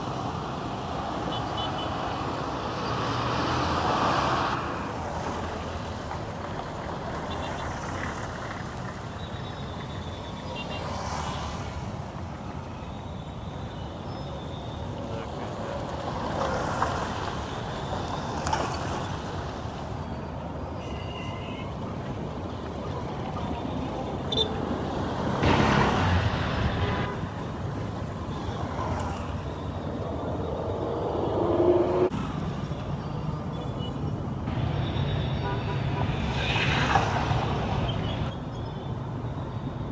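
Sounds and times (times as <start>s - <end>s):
road traffic: 0.0s - 39.9s
tyres on a dirt road: 0.0s - 39.9s
motorcycle engines: 4.7s - 39.3s
car passing: 28.6s - 32.6s.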